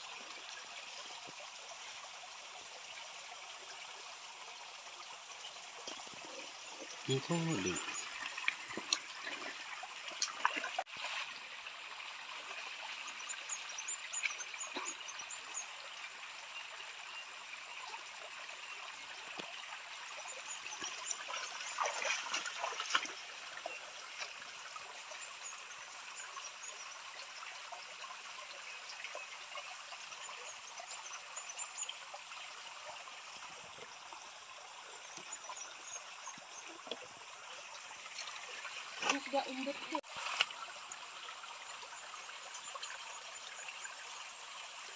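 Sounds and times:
stream trickling over stones: 0.0s - 44.9s.

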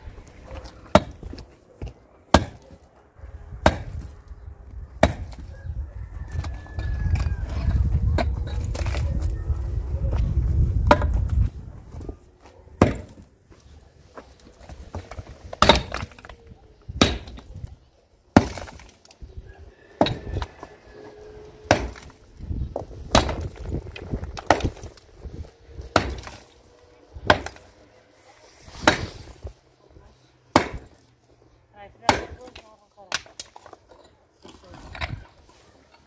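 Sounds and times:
pickaxe striking rocky ground: 0.6s - 2.8s, 3.6s - 4.1s, 5.0s - 5.5s, 10.8s - 11.3s, 12.8s - 13.2s, 14.6s - 16.4s, 17.0s - 17.6s, 18.4s - 19.0s, 20.0s - 20.6s, 21.6s - 22.2s, 22.8s - 25.0s, 25.8s - 26.5s, 27.2s - 27.7s, 28.7s - 29.2s, 30.5s - 31.0s.

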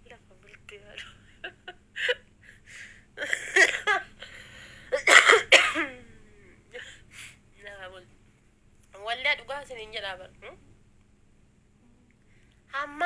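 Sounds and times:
woman coughing: 3.2s - 4.1s, 4.9s - 6.0s.

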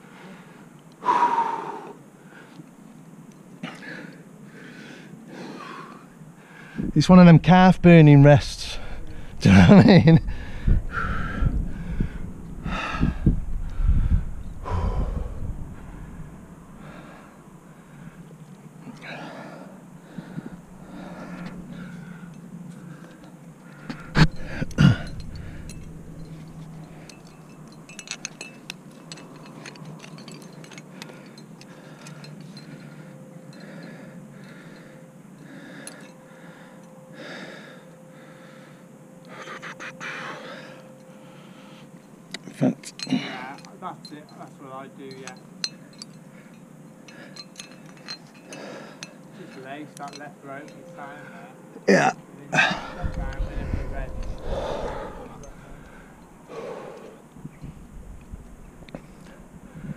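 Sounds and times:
person breathing hard: 0.0s - 2.6s, 3.6s - 6.9s, 10.2s - 16.2s, 16.8s - 27.2s, 30.8s - 42.0s, 46.2s - 49.6s, 52.6s - 57.3s
low rumble: 7.6s - 17.9s, 23.8s - 28.4s, 52.6s - 56.5s
metal climbing gear clicking: 20.1s - 37.0s, 41.9s - 51.1s, 52.5s - 59.9s.

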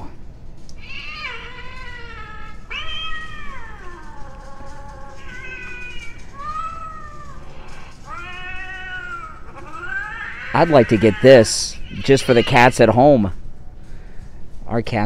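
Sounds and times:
recorded cat meows: 0.7s - 12.8s.

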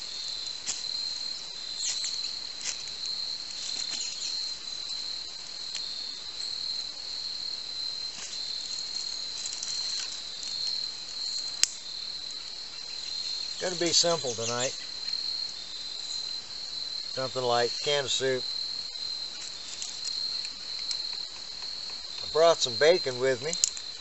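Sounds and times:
crickets chirping: 0.0s - 24.0s
small fire crackling: 0.0s - 24.0s.

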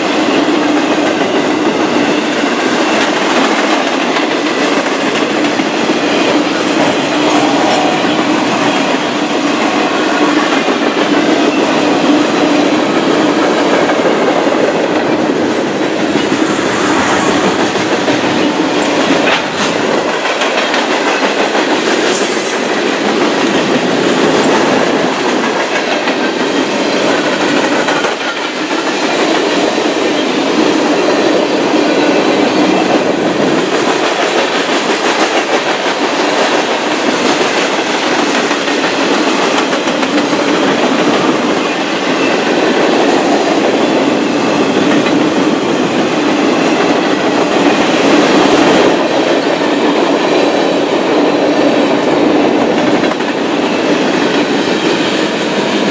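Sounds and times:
train wheels rumbling on rail: 0.0s - 55.9s.

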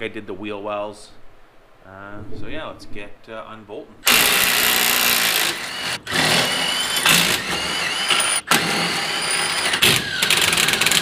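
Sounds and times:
impact wrench running: 4.0s - 11.0s.

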